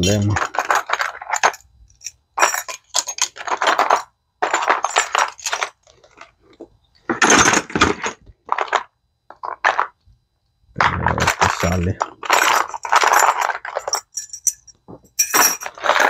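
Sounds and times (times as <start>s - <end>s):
metal hand tools clattering: 0.0s - 1.6s.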